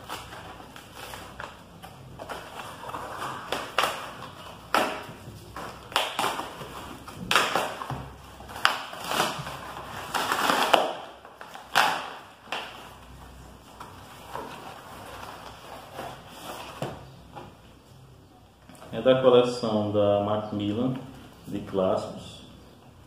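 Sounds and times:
cardboard being torn open: 0.0s - 12.8s.

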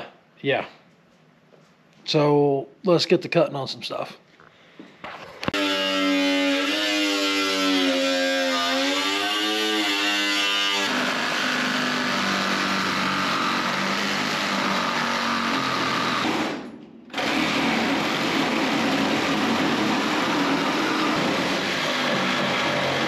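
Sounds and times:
angle grinder cutting steel: 5.5s - 23.0s.

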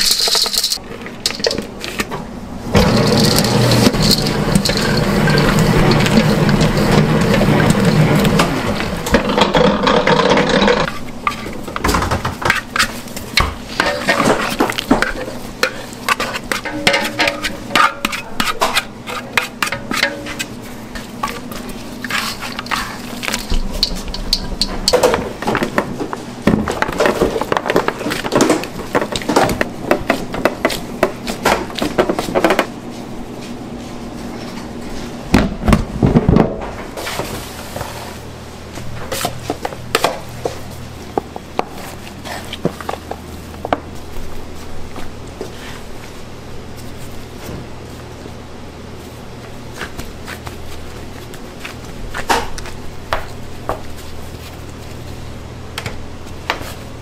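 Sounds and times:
utensils and bowls clinking: 0.0s - 2.1s, 2.7s - 25.9s.

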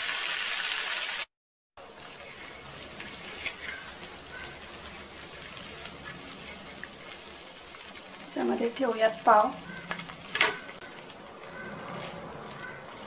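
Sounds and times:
food sizzling in butter: 0.0s - 13.0s
spoon scraping a pan: 2.2s - 7.2s.

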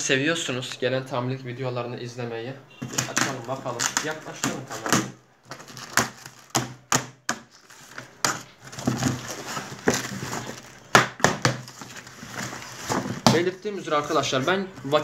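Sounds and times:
packing tape and cardboard ripping: 2.8s - 13.5s.

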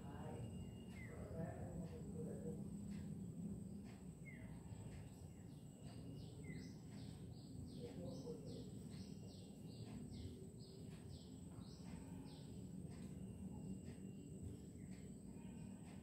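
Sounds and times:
bird chirping: 0.0s - 3.0s, 4.2s - 16.0s
low steady background rumble: 0.0s - 16.0s.

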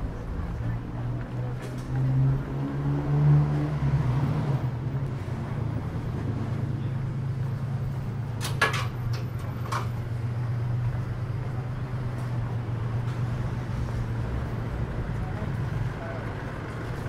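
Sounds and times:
traffic engine hum: 0.0s - 17.0s.

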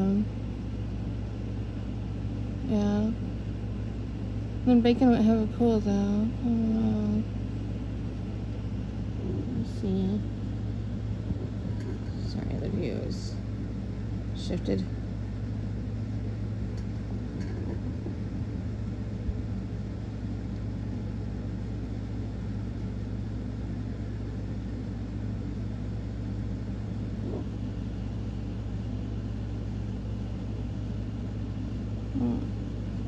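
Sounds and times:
low mechanical hum: 0.0s - 33.0s
even rumble: 4.6s - 22.8s.

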